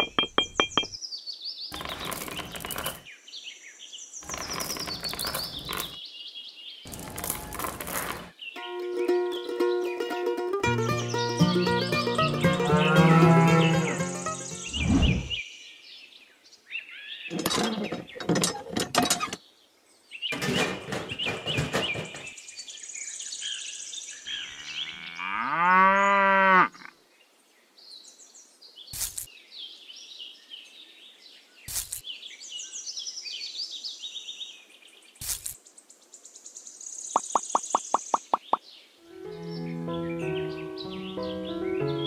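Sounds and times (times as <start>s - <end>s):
sharp knocks: 0.0s - 1.0s, 20.4s - 22.4s
bird chirps: 0.0s - 3.0s, 4.2s - 6.0s, 13.6s - 15.5s, 36.8s - 42.0s
cow mooing: 12.6s - 14.0s, 24.4s - 26.9s.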